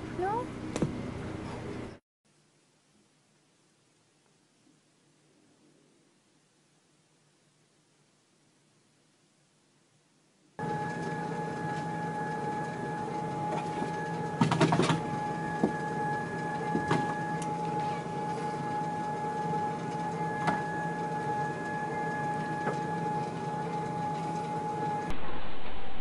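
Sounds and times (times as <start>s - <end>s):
treadmill motor whine: 10.6s - 26.0s.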